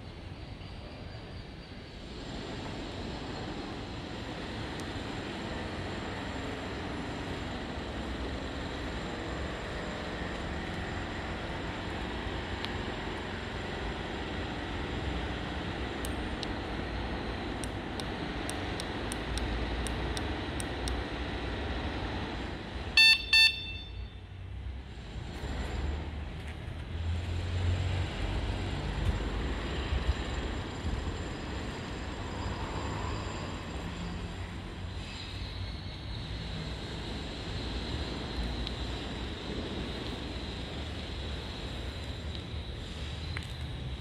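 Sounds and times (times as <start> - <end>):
steady background noise: 0.0 - 44.0
electronic horn beeps: 23.0 - 24.2.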